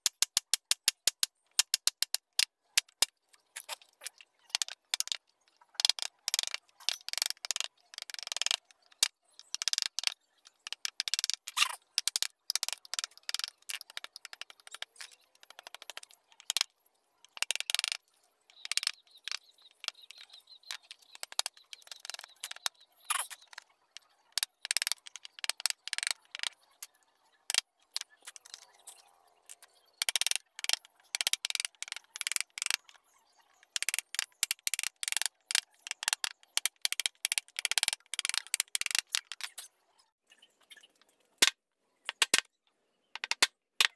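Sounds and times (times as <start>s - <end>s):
wood scraping and clicking: 1.2s - 5.2s, 5.8s - 16.7s, 24.4s - 26.6s, 33.7s - 39.7s.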